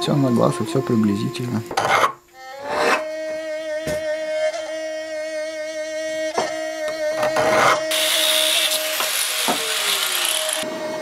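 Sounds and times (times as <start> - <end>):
angle grinder grinding steel: 7.1 - 10.7.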